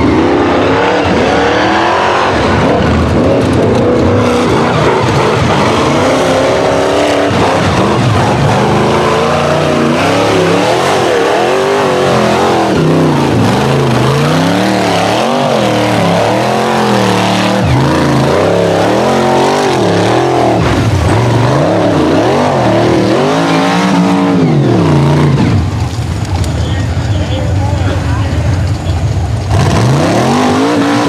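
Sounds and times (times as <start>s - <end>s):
engine revving hard: 0.0s - 25.8s, 29.5s - 31.0s.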